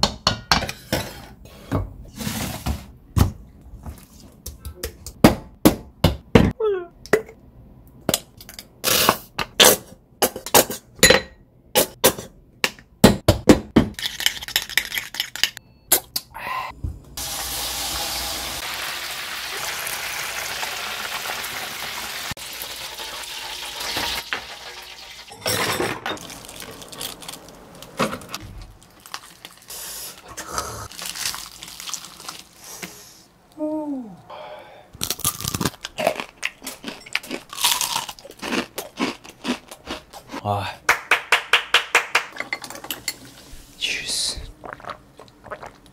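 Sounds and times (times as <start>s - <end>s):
kitchen knocks and clicks: 0.0s - 0.8s
chicken deep-frying in oil: 17.2s - 25.3s.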